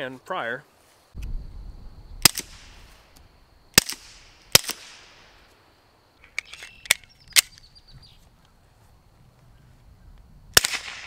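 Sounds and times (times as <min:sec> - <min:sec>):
suppressed pistol shots: 0:02.2 - 0:02.8, 0:03.7 - 0:05.2, 0:10.6 - 0:11.0
quieter sharp cracks: 0:02.2 - 0:07.6, 0:10.5 - 0:11.0.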